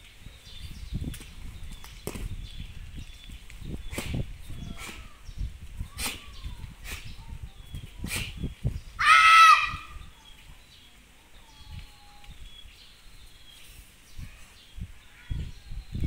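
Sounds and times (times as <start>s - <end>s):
birds chirping faintly: 0.0s - 16.0s
girl shouting: 9.0s - 10.0s.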